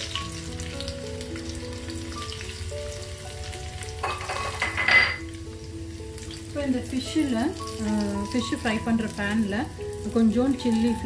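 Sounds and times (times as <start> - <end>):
garlic sizzling in hot oil: 0.0 - 11.0.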